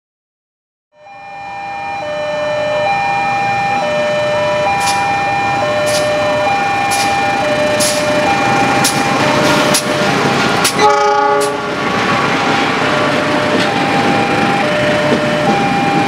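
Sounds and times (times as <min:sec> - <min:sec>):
level crossing ding-dong alarm: 0:01.0 - 0:10.2, 0:12.8 - 0:16.0
train wheels rumbling and clattering: 0:05.8 - 0:16.0
train horn blast: 0:10.7 - 0:11.7.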